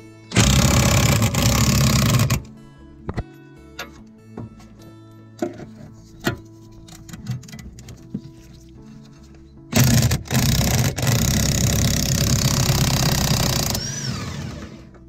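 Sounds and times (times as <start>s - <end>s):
impact wrench rattling: 0.3s - 2.5s
motor winding down whine: 12.4s - 14.9s.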